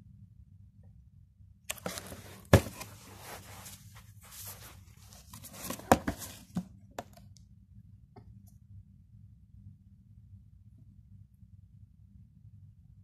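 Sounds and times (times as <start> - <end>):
cardboard packaging rustling and tearing: 1.7 - 6.6
sharp knocks on box: 2.5 - 2.9, 5.7 - 7.1.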